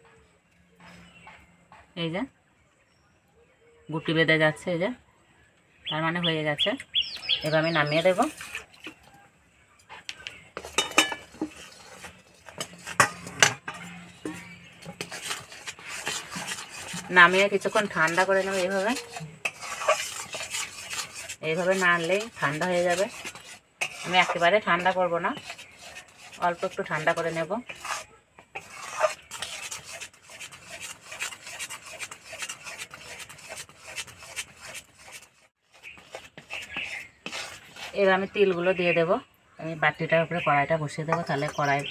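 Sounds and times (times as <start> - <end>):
metal spatula scraping pan: 7.4 - 9.0, 10.6 - 38.8, 41.0 - 41.9
metal spatula clinking in pan: 10.8 - 11.3.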